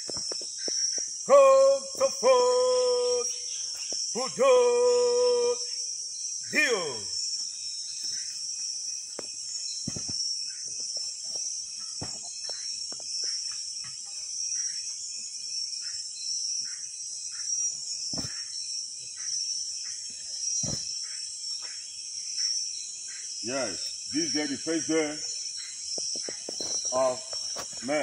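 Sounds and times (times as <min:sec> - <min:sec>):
insects chirping: 0:00.0 - 0:28.0.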